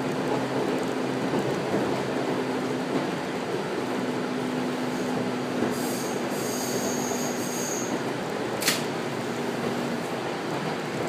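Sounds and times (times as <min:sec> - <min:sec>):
electric train rumbling: 0:00.0 - 0:11.0
wheel squeal: 0:04.9 - 0:08.1
sharp click: 0:08.6 - 0:08.9.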